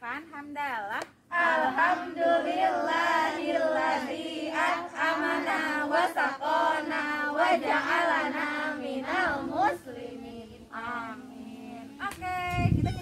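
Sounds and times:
women chanting in unison: 1.3 - 12.0.

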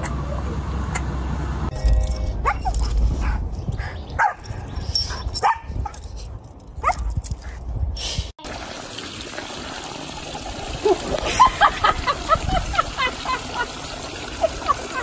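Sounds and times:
dog yipping and barking: 2.4 - 3.0.

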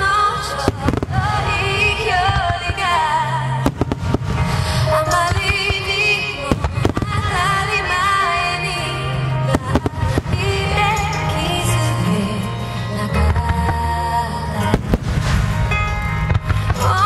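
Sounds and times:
loud music: 0.0 - 17.0
firework shells bursting: 14.8 - 16.9.

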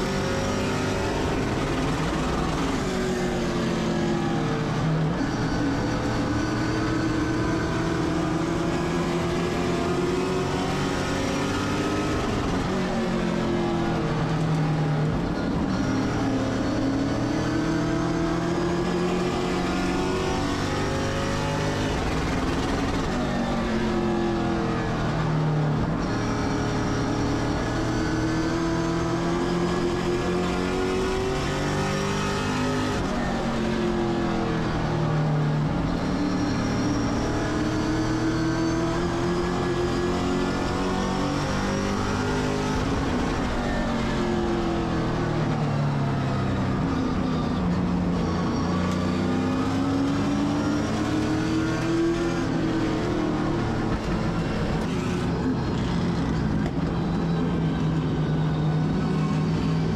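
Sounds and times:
race car engine revving: 0.0 - 59.9.

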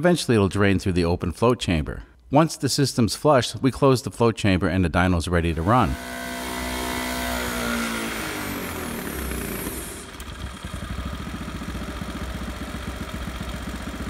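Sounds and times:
small engine winding down: 5.5 - 14.0.

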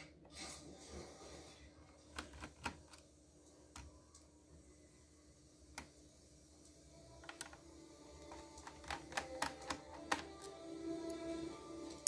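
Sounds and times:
faint clicks of small parts: 8.2 - 11.2.

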